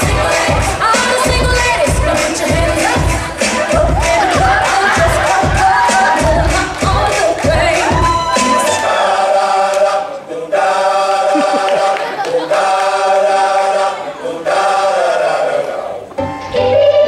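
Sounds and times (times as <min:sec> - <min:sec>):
dance music: 0:00.0 - 0:10.1
choir singing held chords: 0:00.0 - 0:17.0.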